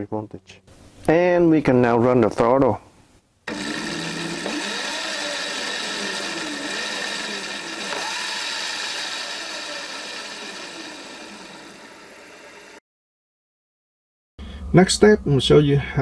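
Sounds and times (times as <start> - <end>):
electric motor whining: 3.5 - 12.8.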